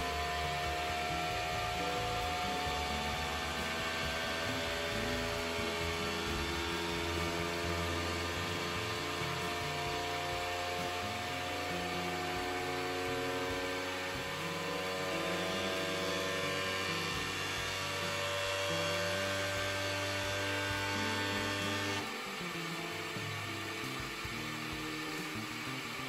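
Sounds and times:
printer motors buzzing hum: 0:05.6 - 0:25.8.

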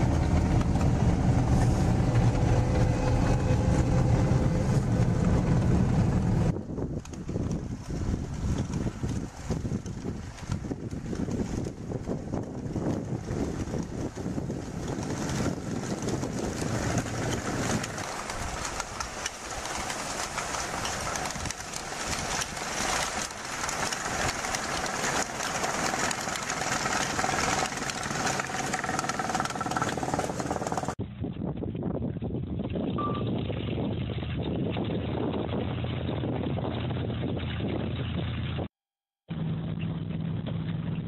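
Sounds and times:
snowcat engine under load: 0:00.0 - 0:31.0.

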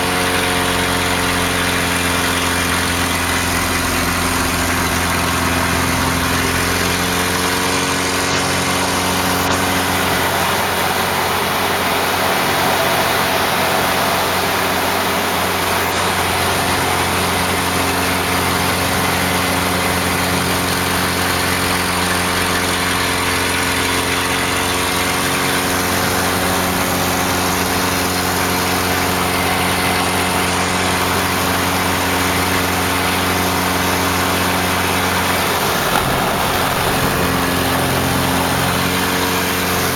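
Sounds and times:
propeller plane engine droning: 0:00.0 - 0:39.9
rushing air noise: 0:35.4 - 0:39.7.

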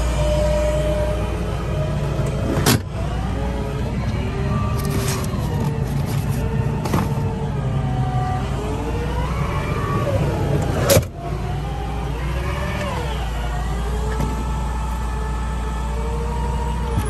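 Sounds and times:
truck engine idling: 0:00.0 - 0:17.0
power window motor whining: 0:02.2 - 0:07.4.

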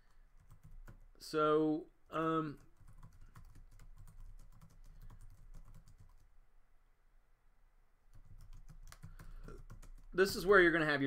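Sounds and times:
faint keyboard typing: 0:00.0 - 0:01.2, 0:02.1 - 0:06.3, 0:08.1 - 0:10.8.

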